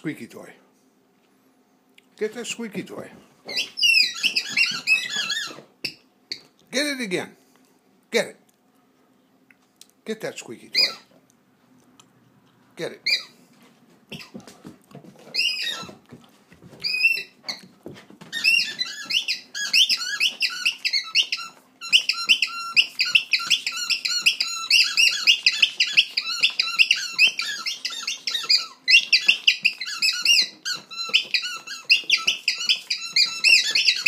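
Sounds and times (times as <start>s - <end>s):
dog chewing squeaky ball: 3.4s - 6.6s, 10.8s - 11.2s, 13.0s - 13.4s, 14.1s - 14.4s, 15.2s - 16.1s, 16.8s - 34.0s.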